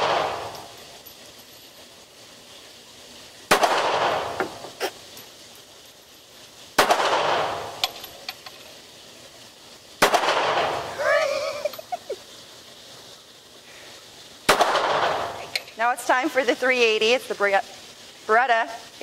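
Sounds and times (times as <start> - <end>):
pistol shots: 0.0 - 0.5, 3.5 - 4.4, 6.8 - 7.8, 10.0 - 10.8, 14.5 - 15.3.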